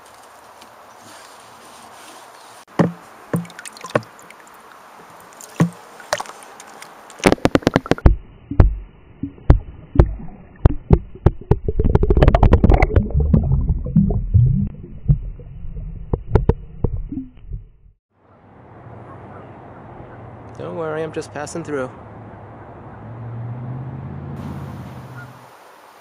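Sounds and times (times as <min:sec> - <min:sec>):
water splashing: 0:02.7 - 0:17.6
muffled underwater knocks: 0:02.8 - 0:04.1, 0:07.2 - 0:13.4, 0:16.1 - 0:17.6
low rushing water rumble: 0:03.1 - 0:18.0
underwater gurgling: 0:07.2 - 0:17.8.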